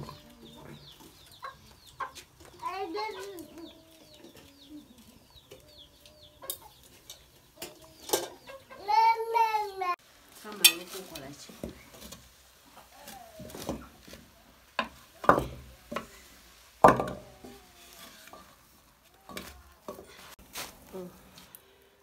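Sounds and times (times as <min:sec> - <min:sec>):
faint sizzle: 0:00.0 - 0:22.0
wooden spoon stirring in pot: 0:10.2 - 0:21.4.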